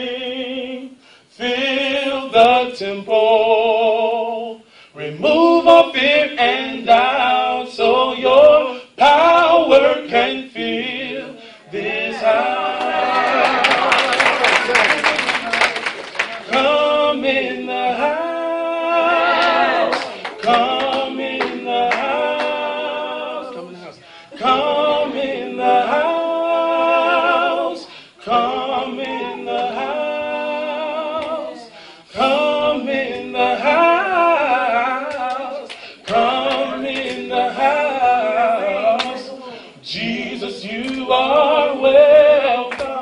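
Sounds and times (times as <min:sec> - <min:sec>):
person singing with vibrato: 0:16.4 - 0:43.0.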